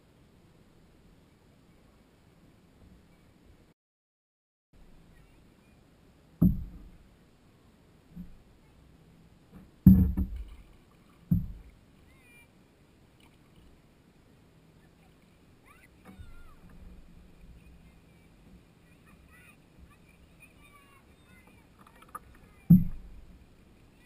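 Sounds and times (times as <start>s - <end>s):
water and hull noise: 4.8s - 24.0s
loud thumps on canoe hull: 6.4s - 7.0s, 9.6s - 10.6s, 11.3s - 11.7s, 22.7s - 23.2s.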